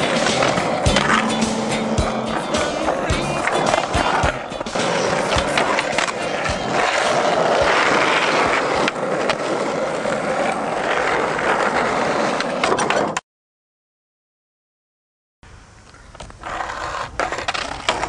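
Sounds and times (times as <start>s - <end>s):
sharp skateboard clacks: 0.0s - 10.4s
skateboard grinding on metal rail: 0.0s - 13.2s, 16.4s - 18.0s
skateboard wheels rolling on concrete: 0.0s - 13.2s, 15.5s - 18.0s.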